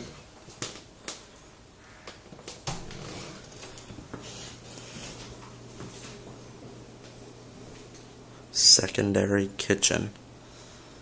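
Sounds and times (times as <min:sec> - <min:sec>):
footsteps: 0:02.3 - 0:08.2.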